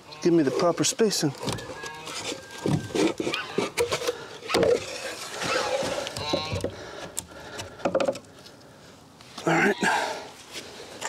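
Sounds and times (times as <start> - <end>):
wood creak: 0.1 - 8.3
plywood scraping and rubbing: 0.2 - 6.8
sharp wooden knocks: 1.4 - 4.8, 6.2 - 6.8, 7.5 - 8.2.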